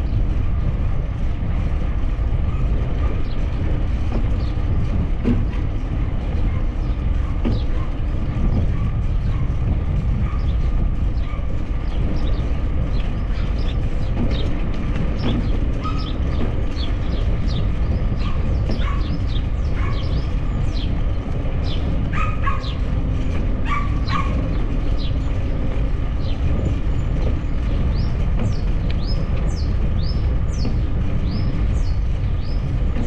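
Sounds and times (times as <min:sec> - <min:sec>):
bicycle rumbling on paved path: 0:00.0 - 0:33.0
birds chirping: 0:10.2 - 0:33.0.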